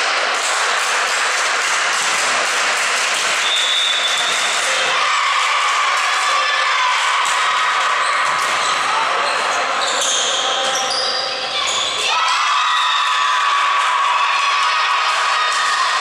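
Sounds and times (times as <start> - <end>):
murmur of voices: 4.0 - 12.3.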